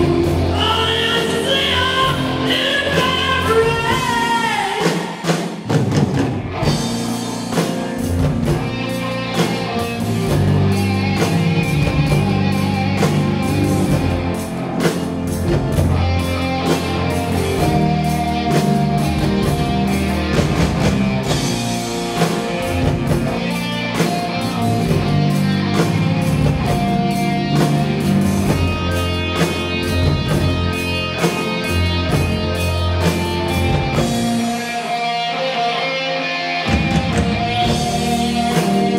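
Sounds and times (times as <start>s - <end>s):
bass: 0.0s - 38.9s
drum kit: 0.0s - 38.9s
electric guitar: 0.0s - 38.9s.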